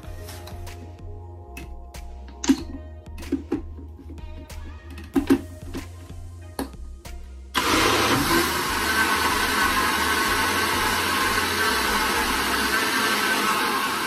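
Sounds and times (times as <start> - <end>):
blender motor running: 7.6 - 14.0.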